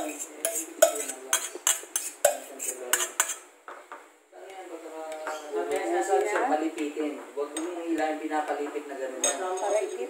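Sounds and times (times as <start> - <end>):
metal spoon scraping a pot: 0.0 - 3.5, 9.2 - 10.0.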